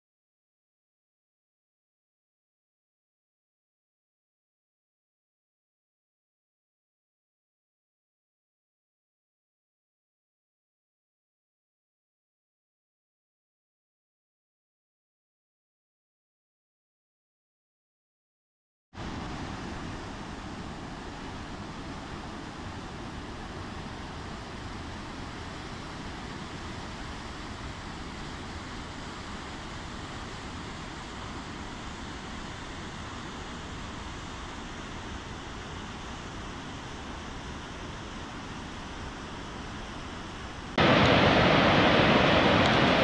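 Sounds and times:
waterfall rushing over boulders: 19.0s - 43.0s.

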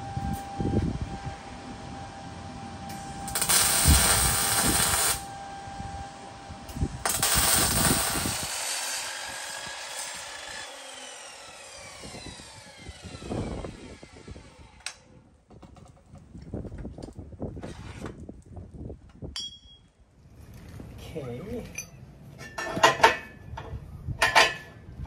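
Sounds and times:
harsh metalworking noise: 2.9s - 5.4s, 6.7s - 15.1s
saw blade winding down: 3.3s - 5.3s, 7.0s - 15.1s
mitre saw cutting steel: 7.0s - 15.1s.

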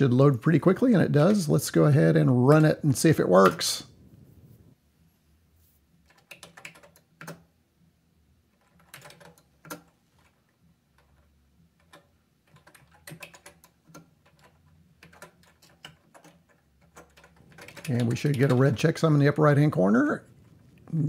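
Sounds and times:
keyboard keys clicking: 6.1s - 7.4s, 8.6s - 10.3s, 11.8s - 18.8s.

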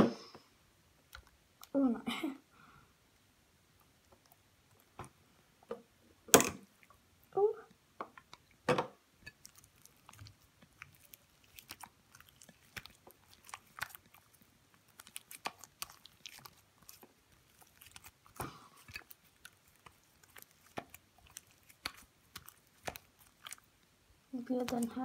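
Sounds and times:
slime squishing: 9.2s - 25.0s.

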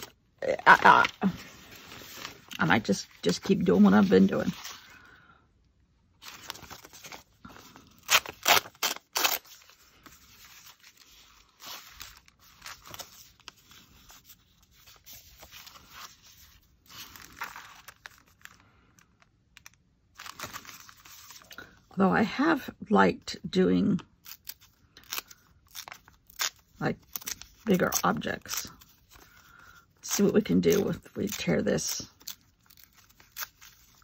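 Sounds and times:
paper rustling: 0.0s - 5.0s, 6.2s - 18.7s
paper tearing: 6.2s - 14.0s.

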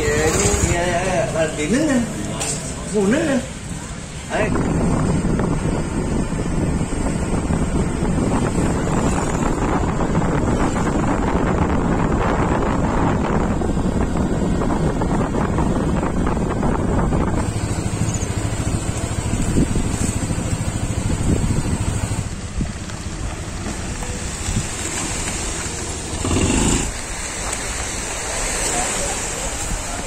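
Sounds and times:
wind rushing over microphone: 3.6s - 23.4s
motor scooter running: 16.8s - 27.1s.

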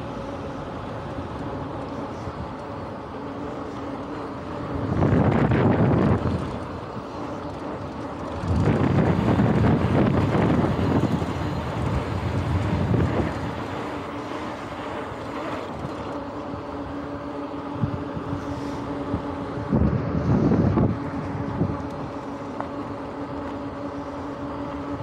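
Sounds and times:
faint steady hum: 0.0s - 25.0s
tyre noise on pavement: 0.0s - 25.0s
wind buffeting microphone: 4.6s - 16.9s, 17.6s - 22.2s.

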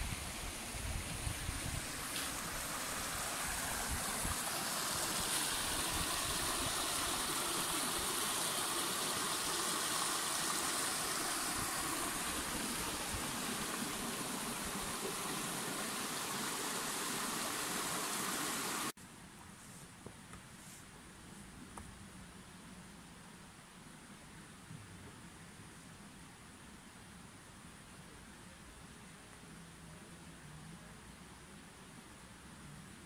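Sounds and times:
stream running over rocks: 0.0s - 18.9s.

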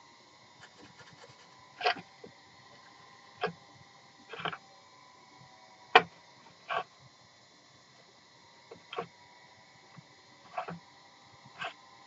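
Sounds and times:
sandpaper rubbing: 0.6s - 1.6s.

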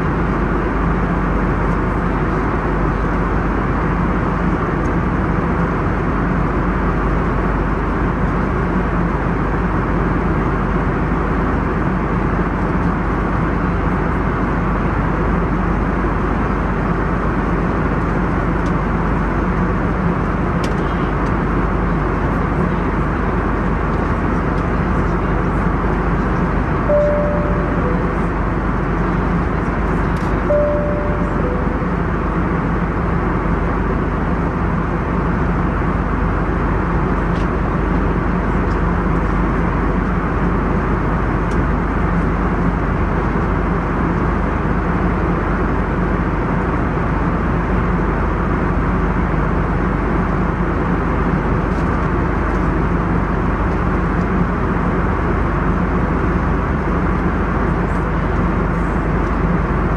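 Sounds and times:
airplane cabin airflow rush: 0.0s - 59.9s
jet engines droning: 10.9s - 43.6s
two-note cabin chime: 26.9s - 28.7s, 30.4s - 32.3s.

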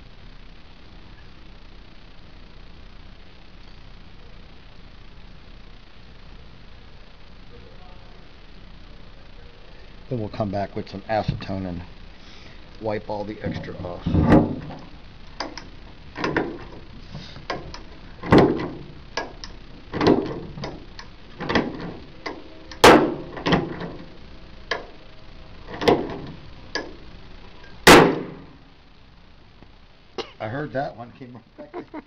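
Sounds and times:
rivet stem snapping off: 15.4s - 16.5s.

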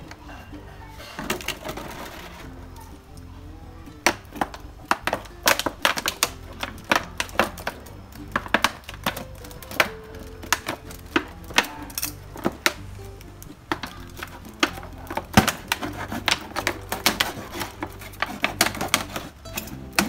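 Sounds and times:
scissors cutting plastic bottle: 4.3s - 12.8s, 13.4s - 20.0s.

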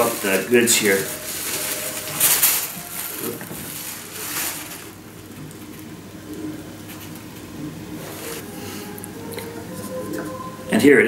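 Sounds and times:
wrapping bag rustling and crinkling: 0.0s - 6.4s.

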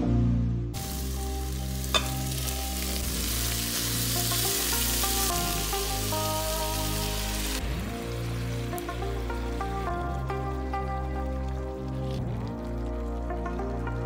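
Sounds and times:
background music: 0.0s - 14.0s
chicken sizzling in a pot: 0.8s - 14.0s.

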